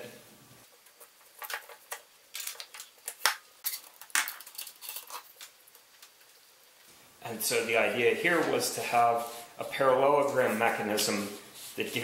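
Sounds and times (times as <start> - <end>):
plywood pieces clacking together: 0.8 - 6.3.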